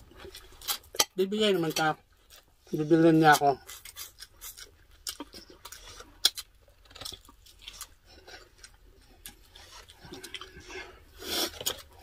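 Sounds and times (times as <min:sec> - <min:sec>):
chewing and lip-smacking: 0:03.6 - 0:12.0.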